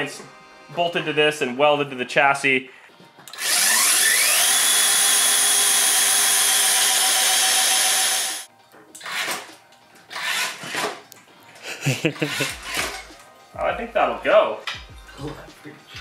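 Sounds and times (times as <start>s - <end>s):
electric motor whining: 3.3s - 8.5s.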